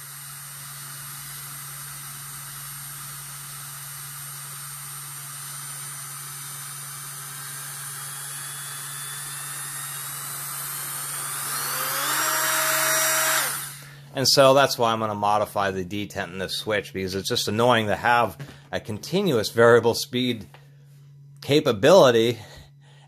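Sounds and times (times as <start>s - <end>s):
rotary tool motor whine: 0.0s - 14.0s.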